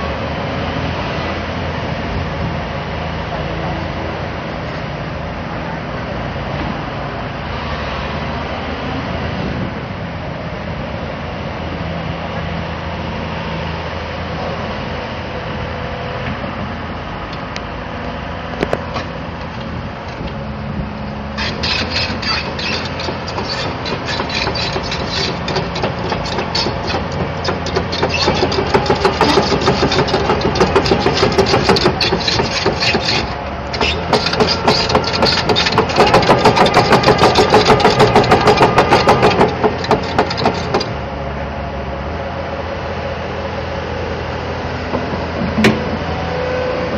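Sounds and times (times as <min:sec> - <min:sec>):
excavator diesel engine running: 0:10.3 - 0:46.9
steel track links clattering: 0:21.4 - 0:41.0.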